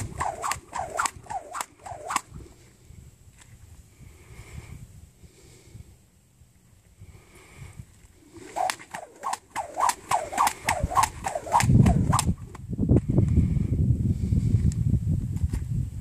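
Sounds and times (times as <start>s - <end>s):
rope whooshing: 0.0s - 2.6s, 8.2s - 12.7s.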